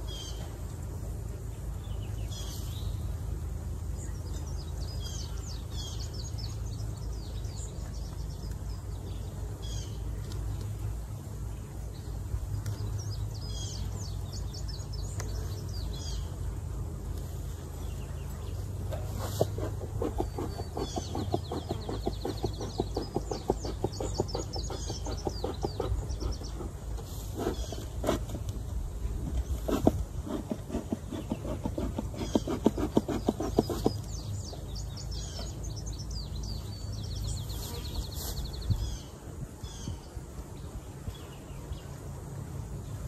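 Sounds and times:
songbirds trilling: 0.0 - 43.0
steady low hum: 0.0 - 43.0
rapid ticking or scratching: 19.1 - 28.6, 29.2 - 34.1.

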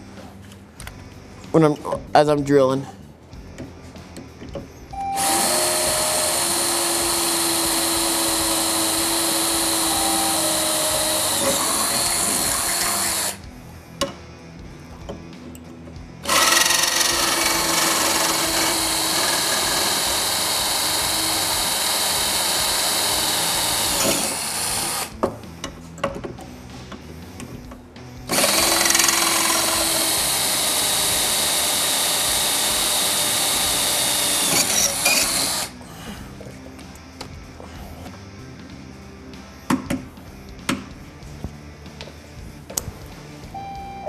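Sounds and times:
power drill boring metal: 5.2 - 13.4, 16.2 - 25.1, 28.3 - 35.7.

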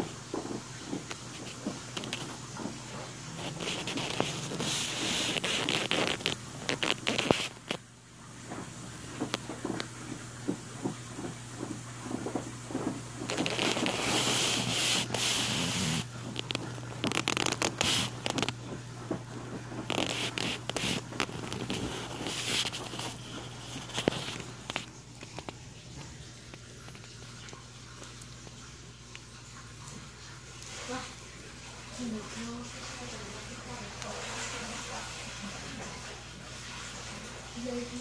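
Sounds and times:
cloth rustling and scraping: 0.0 - 25.9.

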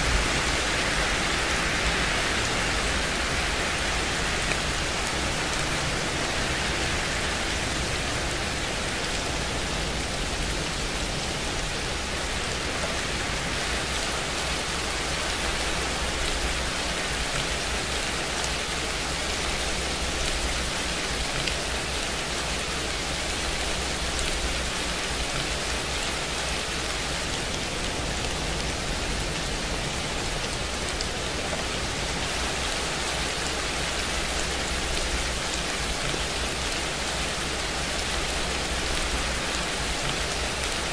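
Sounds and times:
steady rain hiss: 0.0 - 40.9
raindrops ticking: 12.2 - 40.9.

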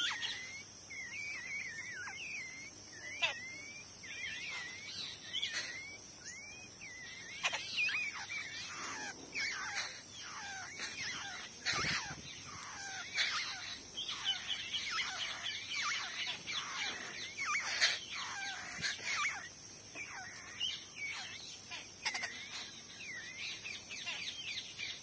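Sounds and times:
nestlings chirping: 0.0 - 25.0.

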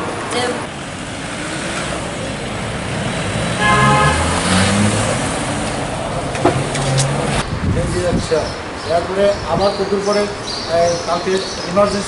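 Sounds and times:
road traffic noise: 0.0 - 12.0
vehicle horn: 3.6 - 4.9.

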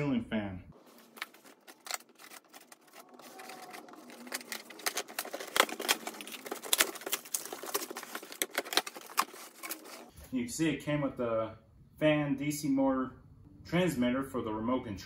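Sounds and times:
tape and cardboard tearing: 1.0 - 10.1
scissors cutting packing tape: 1.2 - 10.1.

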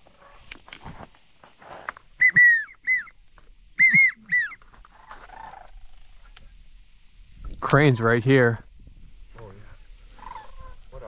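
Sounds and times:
duck whistle calls: 2.2 - 3.1, 3.8 - 4.6.

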